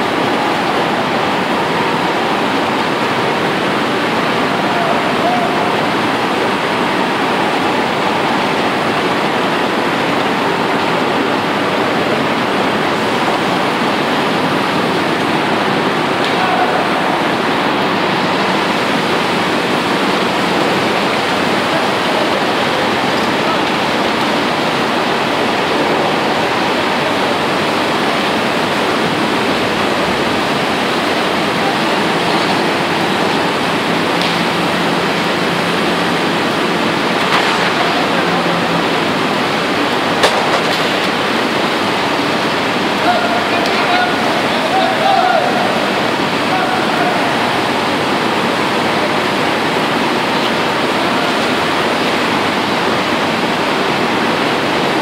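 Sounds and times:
furnace flame rushing: 0.0s - 55.0s.

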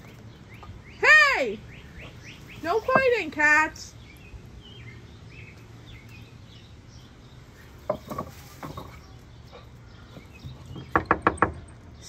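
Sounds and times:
dog paws scrabbling on wooden fence: 7.6s - 11.8s.

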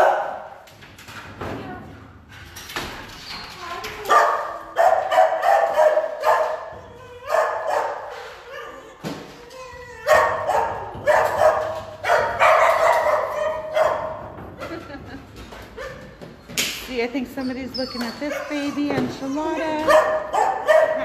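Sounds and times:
dogs barking: 0.0s - 0.6s, 4.0s - 9.0s, 10.0s - 14.9s, 15.6s - 16.2s, 17.8s - 21.0s.

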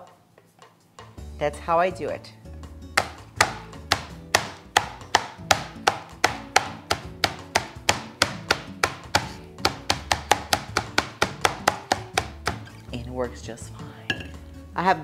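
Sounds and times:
glass pounding meat on board: 2.9s - 12.6s.

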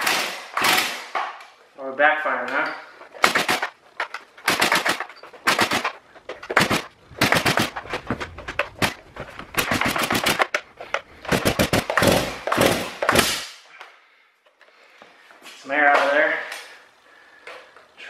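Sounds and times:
chainsaw engine sputtering and backfiring: 6.5s - 10.5s, 11.2s - 13.4s.

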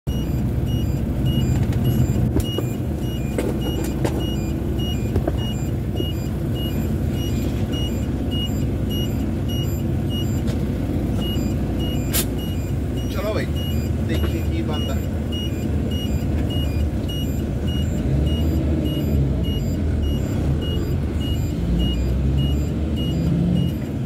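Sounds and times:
road noise: 0.1s - 24.0s
truck engine rumble: 0.1s - 24.0s
faint high beep: 11.2s - 23.9s.

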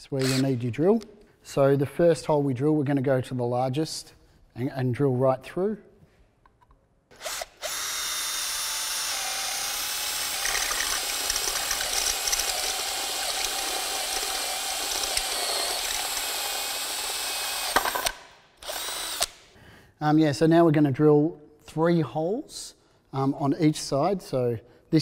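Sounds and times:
drill cutting through metal: 0.2s - 0.5s, 7.1s - 19.4s.

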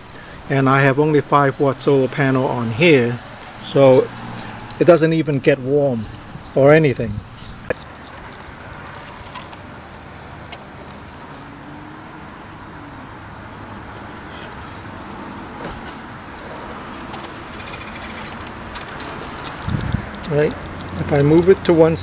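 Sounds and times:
outdoor background noise: 0.0s - 22.0s
wind on microphone: 19.1s - 21.1s.

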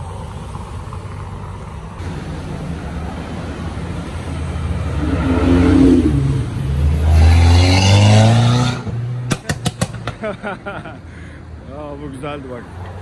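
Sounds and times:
sports car accelerating past: 4.4s - 9.4s
sharp exhaust pops: 7.0s - 10.5s.

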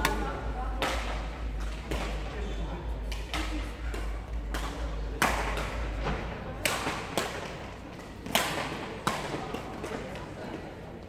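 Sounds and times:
racket striking shuttlecock: 0.0s - 2.3s, 3.0s - 6.0s, 6.6s - 10.1s.

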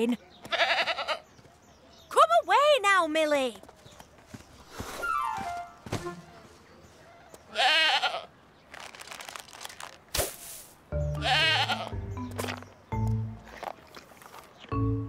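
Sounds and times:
goat bleating: 0.5s - 1.2s, 7.5s - 8.3s, 11.2s - 12.0s
light background music: 5.0s - 6.4s, 10.9s - 13.6s, 14.7s - 15.0s.

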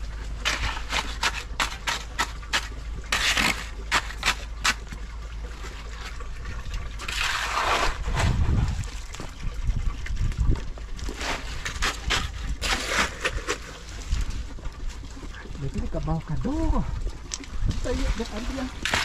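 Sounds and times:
wet concrete sloshing: 0.0s - 19.0s
shovel scraping concrete: 0.4s - 4.8s, 7.0s - 8.9s, 11.1s - 13.9s, 17.9s - 19.0s.

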